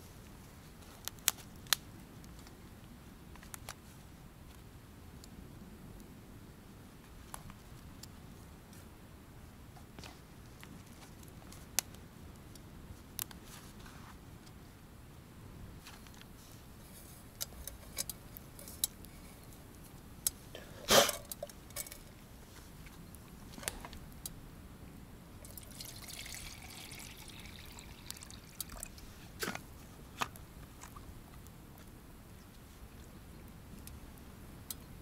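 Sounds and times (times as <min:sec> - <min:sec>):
soft hissing: 0:15.8 - 0:24.3
liquid dripping and trickling: 0:25.4 - 0:29.0.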